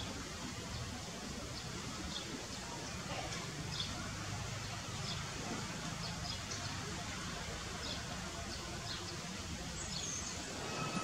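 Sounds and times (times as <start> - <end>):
outdoor background hiss: 0.0 - 11.0
high chirps or squeaks: 10.4 - 11.0.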